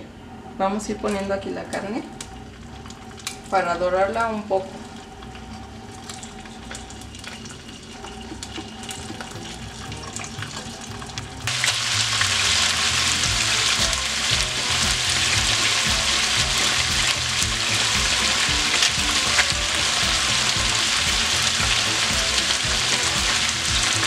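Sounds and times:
meat sizzling in hot oil: 5.7s - 24.0s.

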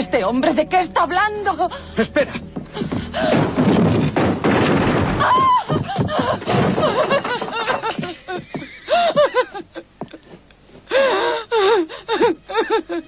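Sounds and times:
person sobbing and gasping: 5.2s - 9.9s, 10.9s - 13.0s.

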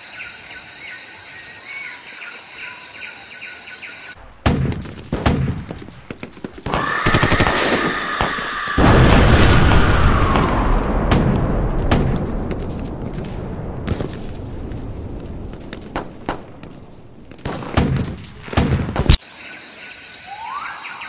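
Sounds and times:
rapid gunfire: 4.4s - 14.4s, 15.4s - 19.2s
insect trilling: 6.7s - 9.2s, 19.2s - 21.0s
loud noise with high tone: 6.7s - 10.2s
bird chirps: 19.2s - 21.0s.

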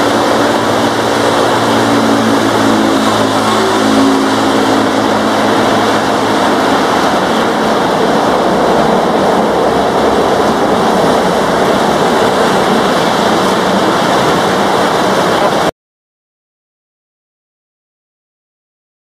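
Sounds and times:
heavy rain hissing: 0.0s - 15.7s
jet engines roaring: 0.0s - 15.7s
wheel spray on wet runway: 0.0s - 15.7s.

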